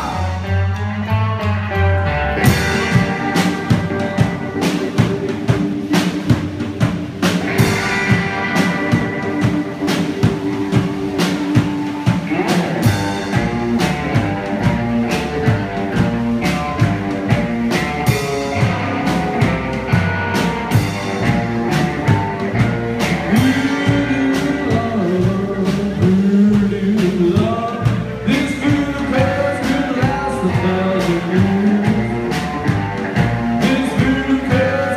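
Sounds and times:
person singing: 0.0s - 1.2s, 23.0s - 34.9s
rockabilly band playing: 0.0s - 34.9s.

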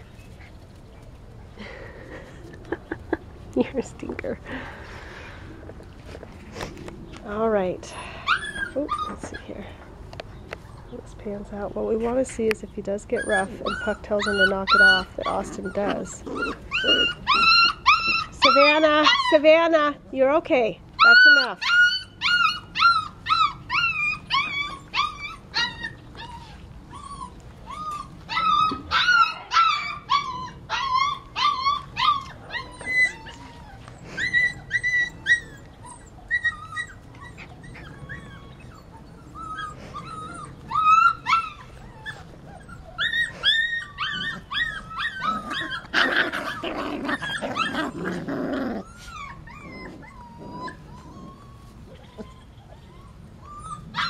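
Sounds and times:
puppies yipping and whining: 0.0s - 3.2s, 7.7s - 19.9s, 21.0s - 54.0s
harsh puppy cry: 13.2s - 19.5s, 21.0s - 54.0s.

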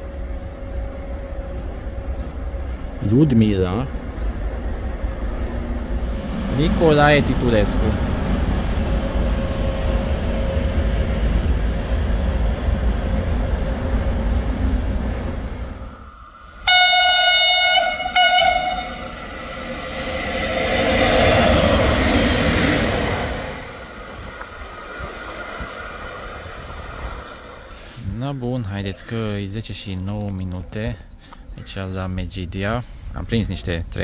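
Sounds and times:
rush of passing train: 0.0s - 29.0s
train rumble: 0.0s - 31.2s
locomotive horn: 16.6s - 19.9s.

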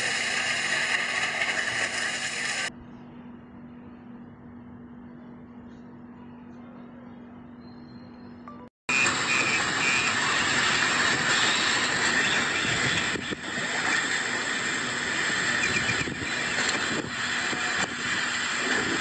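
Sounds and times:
heavy driving rain: 9.0s - 19.0s
strong wind: 9.0s - 19.0s.

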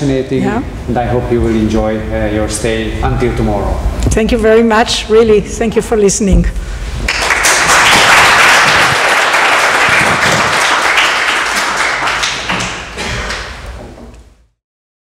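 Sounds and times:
audience applauding: 7.0s - 13.8s.

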